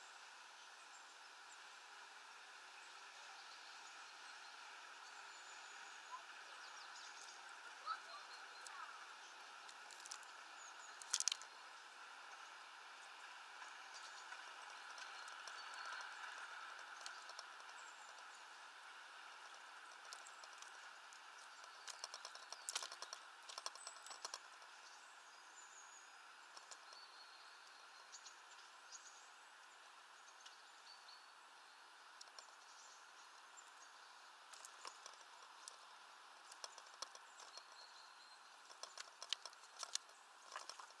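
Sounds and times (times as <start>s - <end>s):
distant small birds chirping: 0.0s - 41.0s
steady faint hiss: 0.0s - 41.0s
small clicks and taps: 9.6s - 10.3s, 11.0s - 11.5s, 14.3s - 18.3s, 19.4s - 24.7s, 26.5s - 27.0s, 34.5s - 35.8s, 36.4s - 37.7s, 38.6s - 41.0s.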